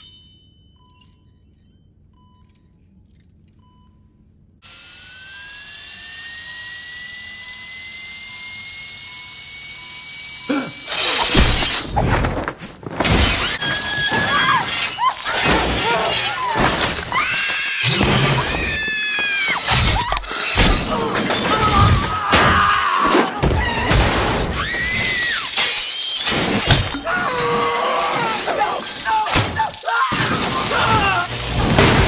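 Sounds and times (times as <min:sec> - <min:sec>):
glass shattering: 0:13.0 - 0:18.8, 0:23.8 - 0:32.0.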